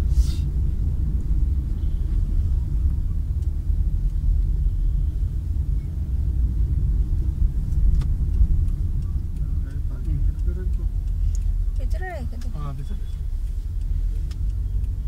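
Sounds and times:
car cabin road rumble: 0.0s - 15.0s
faint clicks: 6.9s - 15.0s.

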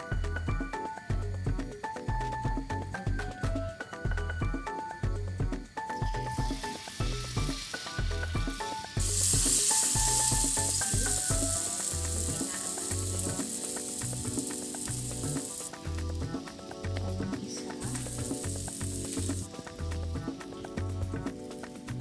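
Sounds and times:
hot oil sizzling: 5.0s - 22.0s.

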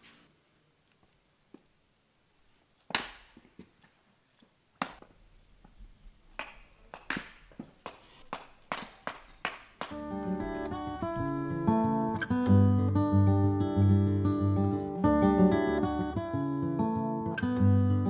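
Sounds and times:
hatchet chopping firewood: 2.9s - 3.4s.

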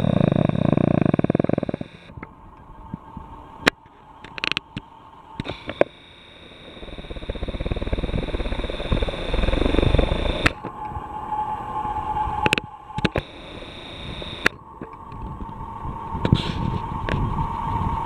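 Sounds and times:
sharp clicks: 0.0s - 2.3s, 3.6s - 6.0s, 6.6s - 10.8s, 12.5s - 15.2s
helicopter rotor beat: 0.0s - 3.6s, 5.3s - 10.8s, 12.5s - 16.3s
helicopter turbine whine: 0.0s - 18.0s.

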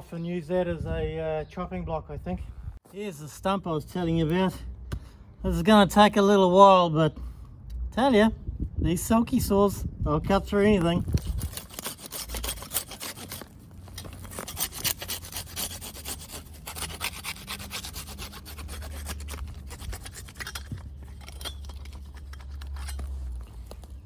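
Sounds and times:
hand saw cutting wood: 11.2s - 23.2s.

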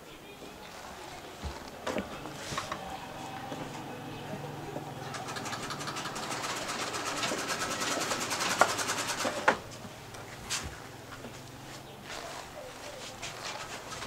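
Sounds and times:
sewing machine stitching: 4.9s - 9.6s
sharp clicks: 5.1s - 9.4s.

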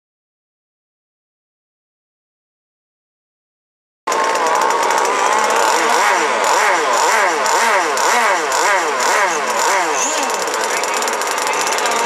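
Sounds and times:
powerboat engine revving: 4.1s - 12.0s.

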